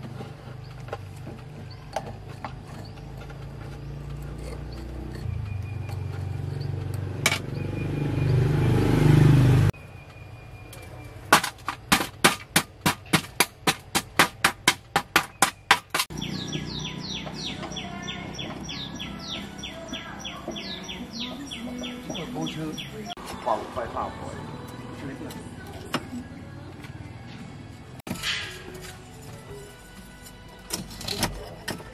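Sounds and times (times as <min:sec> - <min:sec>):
birds chirping: 0:00.1 - 0:12.0, 0:14.9 - 0:28.0
screwdriver scraping debris: 0:29.8 - 0:31.9.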